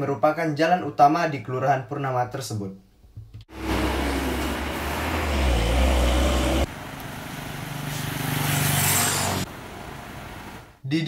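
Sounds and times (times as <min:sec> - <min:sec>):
motorcycle engine: 0:03.5 - 0:09.5
truck engines rumbling: 0:03.5 - 0:10.8.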